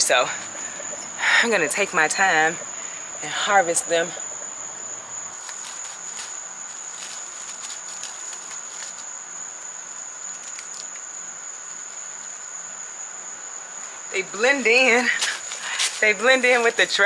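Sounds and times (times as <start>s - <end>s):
insects trilling: 0.0s - 17.0s
rustling and snapping leaves: 5.3s - 12.4s, 15.0s - 17.0s.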